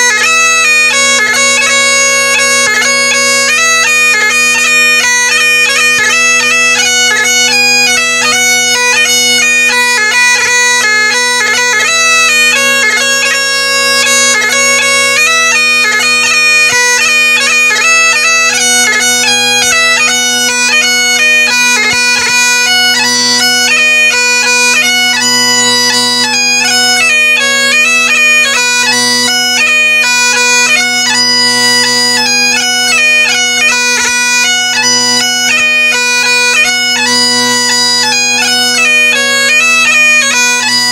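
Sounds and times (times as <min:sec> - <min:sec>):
bagpipe drones humming: 0:00.0 - 0:40.9
bagpipe melody: 0:00.0 - 0:40.9.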